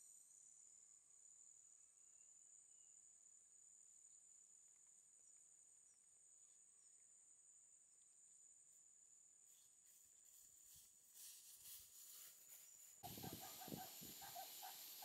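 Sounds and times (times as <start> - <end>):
faint chirps: 1.5 - 15.0
insects trilling: 8.2 - 15.0.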